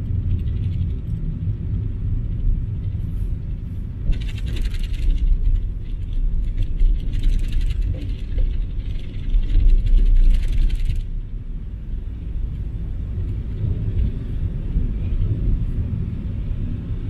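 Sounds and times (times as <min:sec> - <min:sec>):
car engine and tyre rumble: 0:00.0 - 0:17.0
light rattling: 0:02.3 - 0:11.2.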